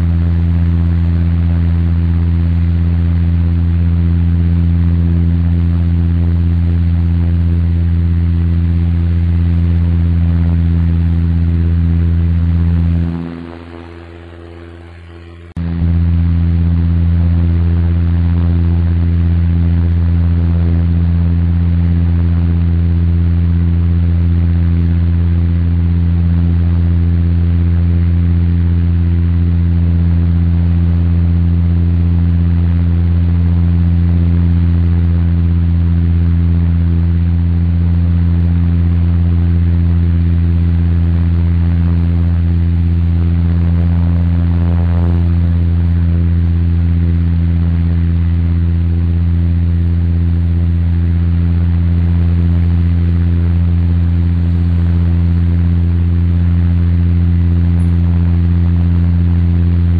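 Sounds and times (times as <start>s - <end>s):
low engine hum: 0.0s - 59.9s
steady tones: 11.0s - 16.0s
airflow rush: 43.1s - 46.8s.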